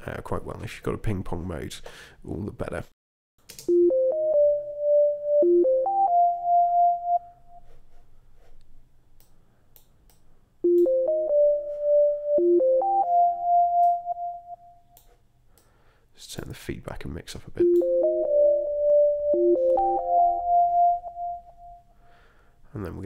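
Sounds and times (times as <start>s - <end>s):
chorused sine-wave synthesizer melody: 3.7s - 7.8s, 10.6s - 15.2s, 17.6s - 22.0s.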